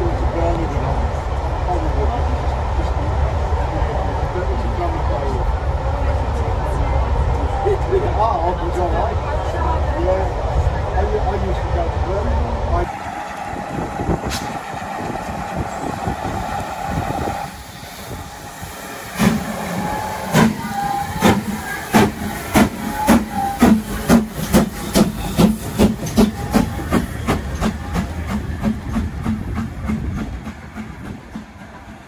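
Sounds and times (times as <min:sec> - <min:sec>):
steam hissing: 0:12.8 - 0:32.0
steam locomotive exhaust chuffs: 0:12.8 - 0:32.0.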